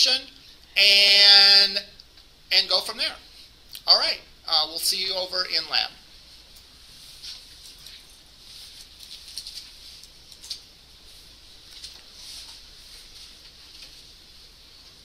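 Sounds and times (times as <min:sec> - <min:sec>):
steady hiss: 0:00.0 - 0:15.0
faint rustling: 0:06.2 - 0:15.0.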